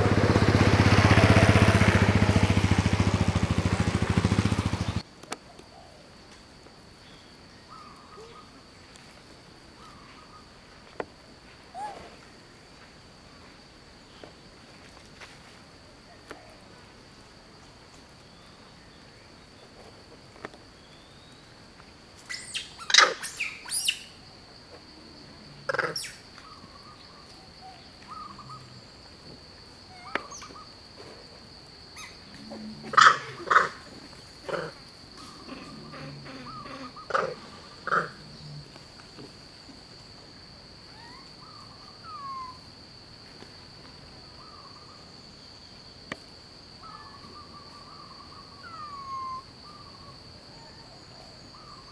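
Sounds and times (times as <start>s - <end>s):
sharp animal calls: 22.3s - 24.1s, 25.6s - 27.0s, 27.7s - 28.8s, 32.0s - 38.6s, 46.8s - 50.2s
bird chirps: 22.3s - 24.2s
high-pitched insect drone: 31.9s - 39.0s.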